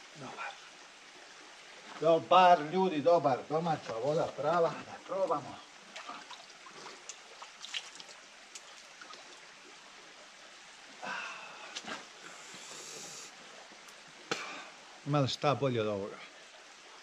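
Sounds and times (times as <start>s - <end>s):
water splashing: 3.8s - 9.7s.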